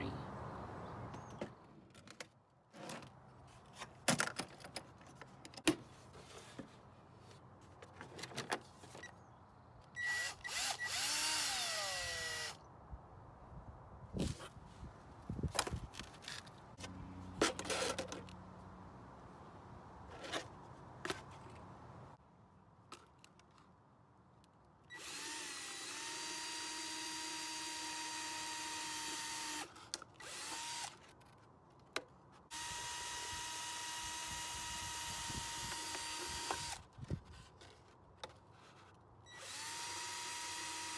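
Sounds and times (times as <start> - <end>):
cordless drill whining: 10.0 - 12.6, 24.9 - 31.0, 32.5 - 36.9, 39.3 - 40.9.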